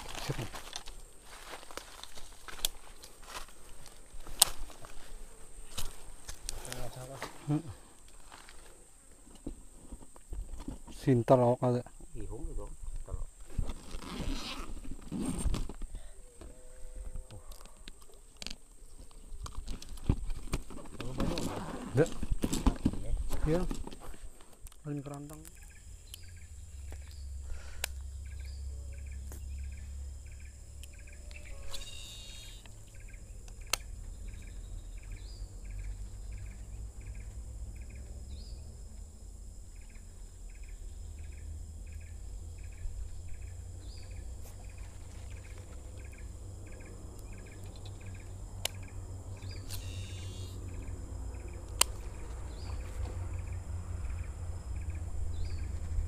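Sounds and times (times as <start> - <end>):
high insect whine: 0.0 - 56.0
insect chirping in pulses: 11.0 - 56.0
sharp clicks: 32.6 - 33.9, 51.6 - 52.1
low rumble: 50.5 - 56.0.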